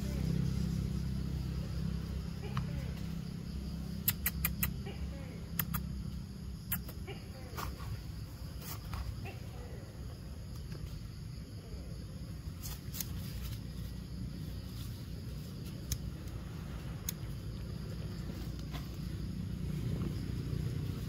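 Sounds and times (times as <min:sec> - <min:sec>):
sharp clicks: 0:04.0 - 0:04.8
steady low rumble: 0:09.9 - 0:21.0.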